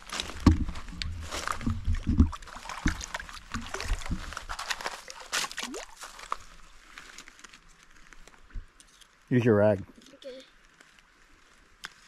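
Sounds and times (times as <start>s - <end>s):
water splashing and sloshing: 0.0s - 8.8s.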